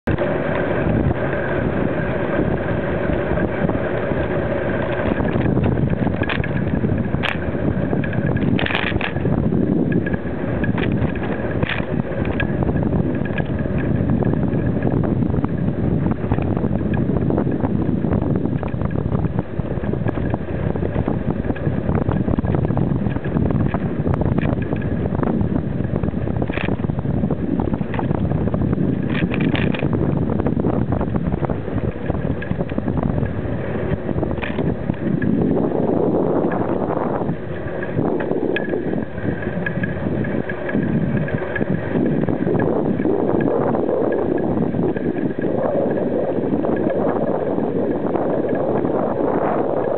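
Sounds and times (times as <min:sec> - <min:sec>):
wind buffeting microphone: 0:00.0 - 0:49.9
rattles and knocks from mount: 0:04.9 - 0:12.5, 0:29.0 - 0:30.0, 0:34.4 - 0:35.3.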